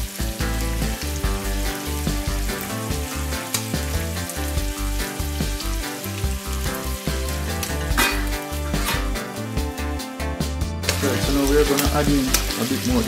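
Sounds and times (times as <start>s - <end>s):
background music with bass: 0.0s - 13.0s
metal lid clanking on pot: 7.9s - 9.2s.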